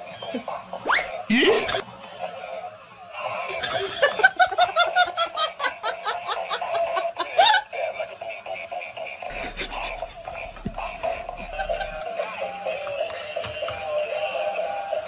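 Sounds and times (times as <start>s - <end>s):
person laughing: 1.3s - 1.8s, 3.4s - 12.1s
steady tone: 9.3s - 12.7s.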